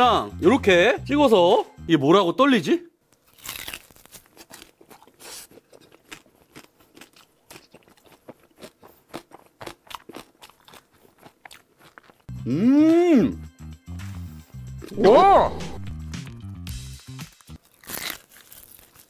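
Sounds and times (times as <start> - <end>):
crunchy food being chewed: 3.2 - 12.3, 17.4 - 19.0.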